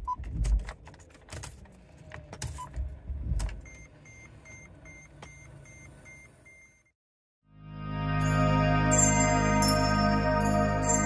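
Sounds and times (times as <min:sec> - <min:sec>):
dashboard warning chime beeping: 0:03.6 - 0:06.9.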